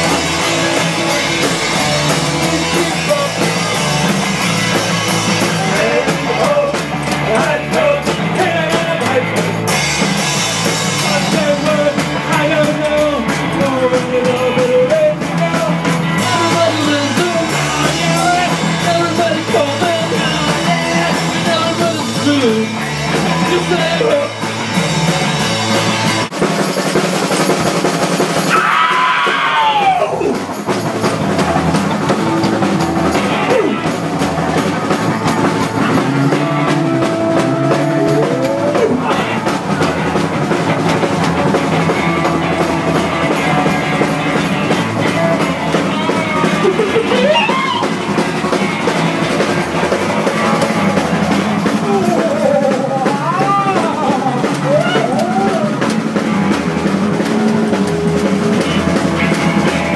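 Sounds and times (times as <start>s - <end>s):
rock band playing live: 0.0s - 59.9s
voice sliding in pitch: 37.4s - 39.2s.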